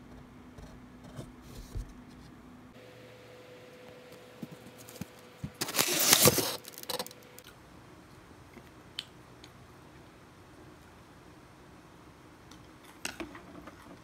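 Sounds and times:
cardboard box rustling and scraping: 4.8 - 6.7.

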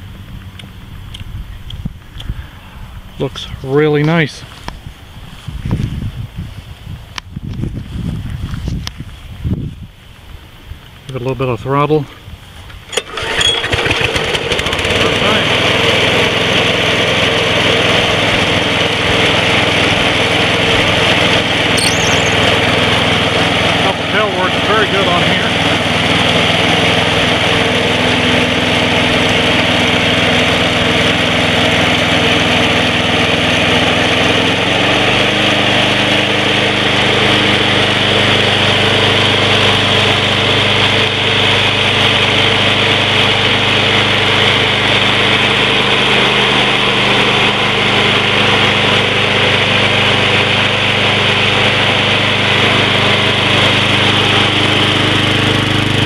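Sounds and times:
lawn mower engine running: 12.5 - 56.0.

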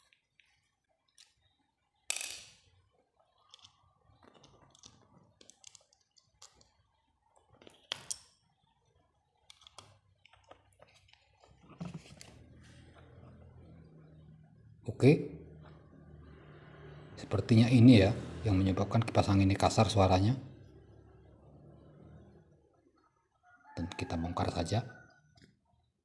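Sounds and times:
screwdriver and metal parts clinking: 7.6 - 8.4.

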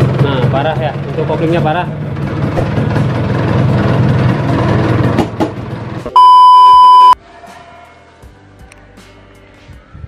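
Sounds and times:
two-stroke engine with noisy clutch: 0.0 - 6.1
loud steady beep tone: 6.2 - 7.2.

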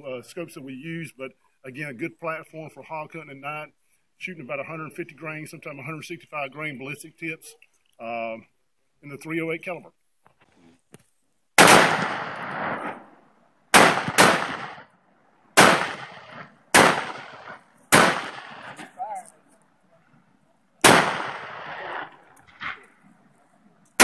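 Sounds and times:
rifle shots with echo: 11.6 - 14.9, 15.6 - 19.0, 20.8 - 23.0.

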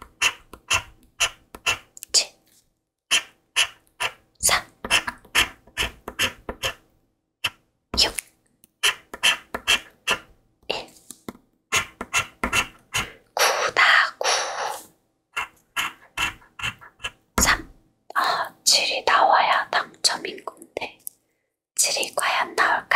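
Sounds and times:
scratching lottery ticket: 11.7 - 13.1, 15.4 - 17.2.

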